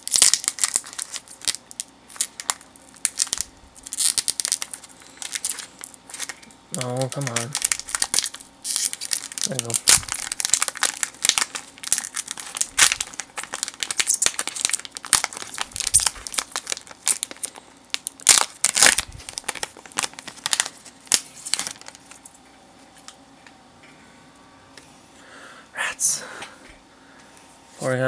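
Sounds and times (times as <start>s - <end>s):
foil wrapper crinkling: 0.0s - 22.4s.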